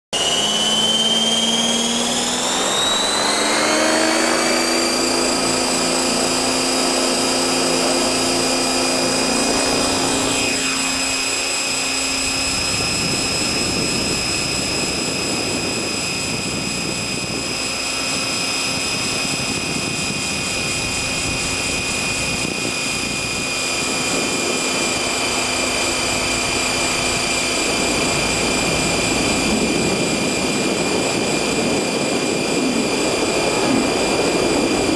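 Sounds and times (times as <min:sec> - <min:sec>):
helicopter motor whine: 0:00.1 - 0:34.9
rushing noise: 0:23.3 - 0:34.9.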